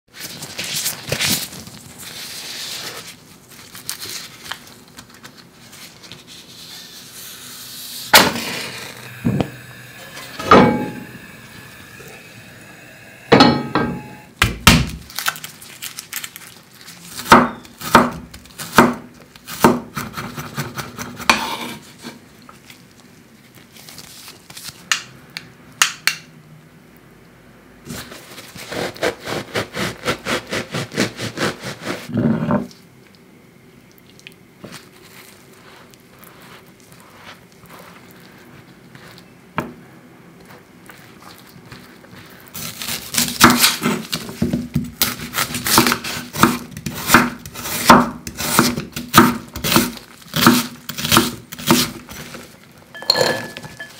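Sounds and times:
utensils knocking on cutting board: 8.2 - 11.1, 13.3 - 14.9
garlic being peeled: 14.4 - 21.3, 27.9 - 32.1, 40.4 - 52.6
knife sawing through bread: 27.9 - 32.1, 49.6 - 52.3.

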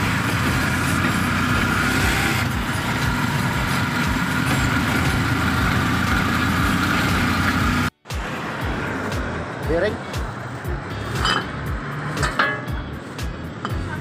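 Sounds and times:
motorcycle engine running: 0.0 - 9.3.

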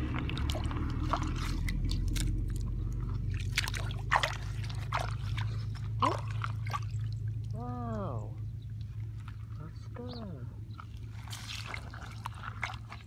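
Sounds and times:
hand splashing in muddy puddle: 0.0 - 7.6, 10.8 - 13.0
steady low hum: 0.0 - 13.0.

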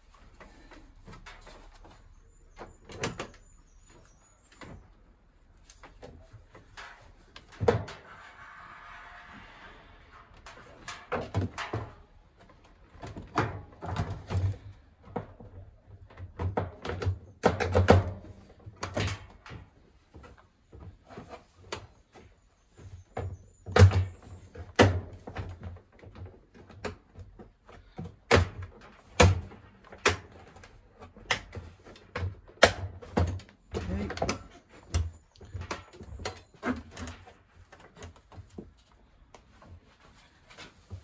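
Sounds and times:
knocks and clunks of dryer parts: 10.4 - 38.8.

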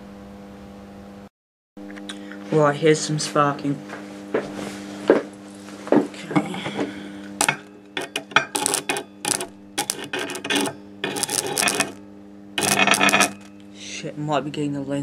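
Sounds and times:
transformer humming: 6.6 - 14.0
electric arc crackling and snapping: 7.4 - 12.0, 12.6 - 13.6.

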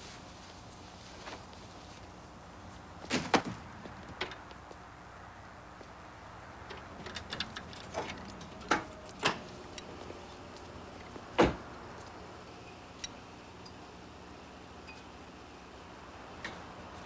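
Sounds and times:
car door shutting: 11.3 - 11.7.

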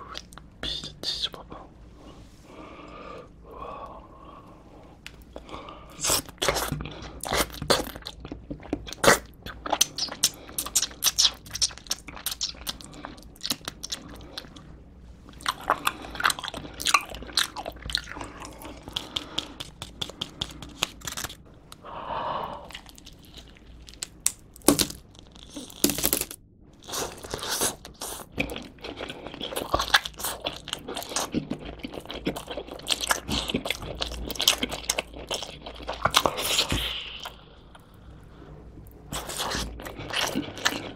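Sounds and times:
chewing and biting pizza: 5.4 - 14.7, 15.3 - 21.4, 26.8 - 37.4, 39.1 - 40.9.

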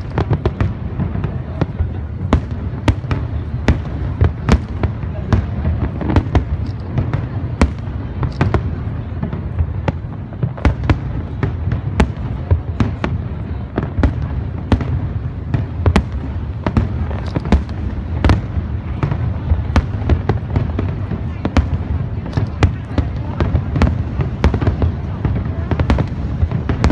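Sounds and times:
firework shells bursting: 15.5 - 20.9.

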